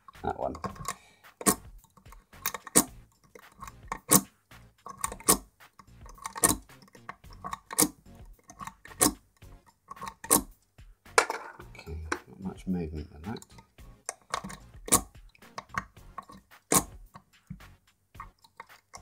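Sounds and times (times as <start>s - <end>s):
lock pick clicking in lock: 0.5s - 10.6s, 13.4s - 17.3s.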